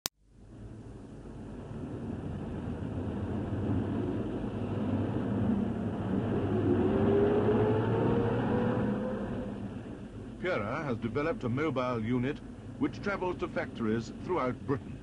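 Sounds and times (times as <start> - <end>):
thin rising whine: 0.5 - 10.4.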